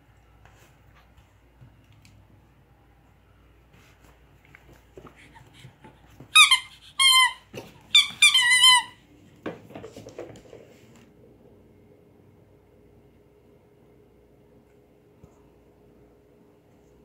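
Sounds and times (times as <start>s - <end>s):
squeaky dog toy squeaking: 6.3s - 9.0s.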